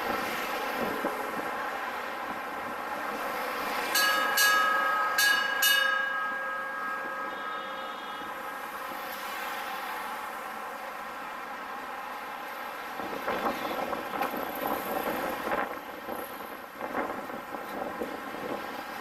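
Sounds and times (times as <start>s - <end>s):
road traffic hum: 0.0s - 19.0s
bell ringing: 3.9s - 8.9s.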